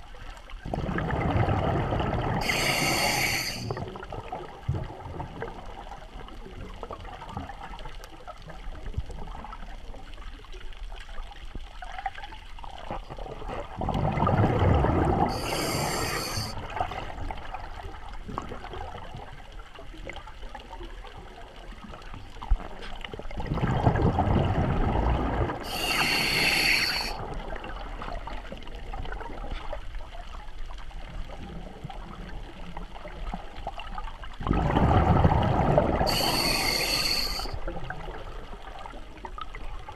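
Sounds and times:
muffled wash of water: 0.0s - 39.9s
underwater breathing bubbles: 0.7s - 4.0s, 13.8s - 17.0s, 23.5s - 27.5s, 34.5s - 37.7s
mouthpiece valve hiss: 2.4s - 3.8s, 15.3s - 16.6s, 25.7s - 27.2s, 36.1s - 37.6s.

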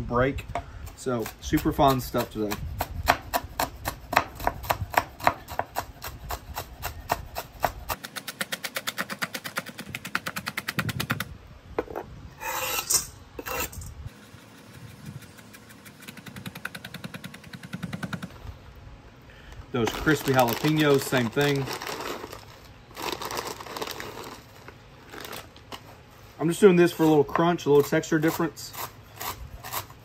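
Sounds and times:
knife chopping on wooden board: 1.2s - 10.6s.

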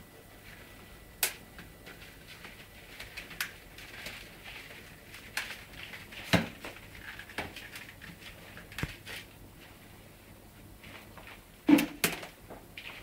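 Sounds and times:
wicker basket scraping on tile: 1.9s - 9.8s.

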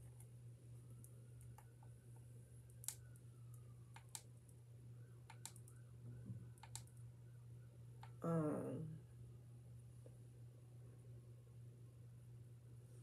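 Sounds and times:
low steady hum: 0.0s - 13.0s
small objects clicking and tapping: 5.3s - 5.8s, 6.6s - 7.0s.

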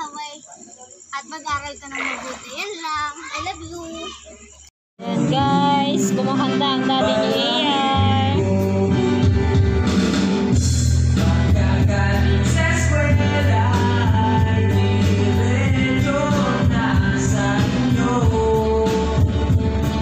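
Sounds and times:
man singing into a microphone: 5.0s - 9.3s, 11.2s - 19.6s
karaoke backing track: 5.0s - 20.0s.

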